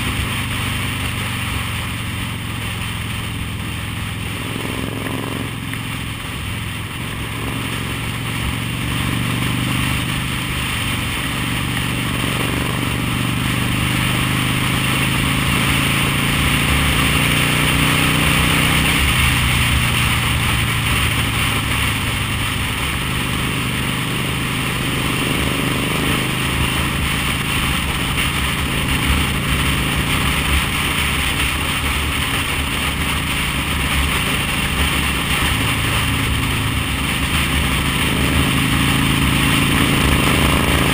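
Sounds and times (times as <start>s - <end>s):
motorcycle engine running: 0.0s - 40.9s.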